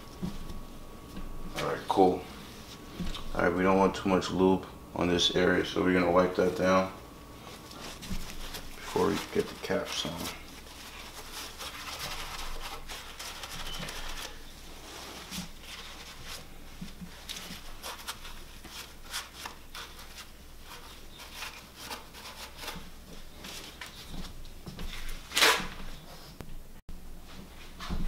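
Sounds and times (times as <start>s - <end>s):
cloth rag rustling on metal: 7.4s - 26.4s.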